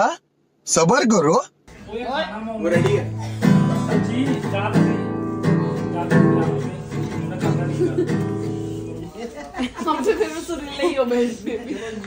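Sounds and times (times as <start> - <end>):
acoustic guitar strumming: 1.7 - 9.2.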